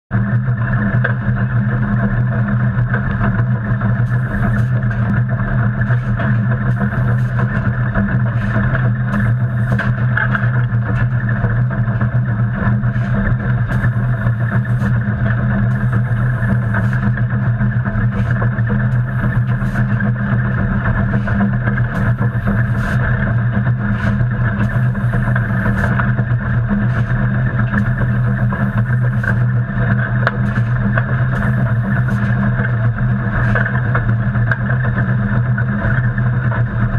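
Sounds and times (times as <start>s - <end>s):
locomotive cab rumble and roar: 0.3s - 36.9s
coal shovel scraping: 21.2s - 23.1s.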